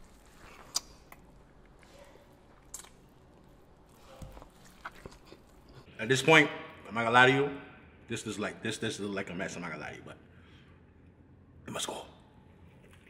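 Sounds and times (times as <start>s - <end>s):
man chewing food: 0.0s - 5.9s.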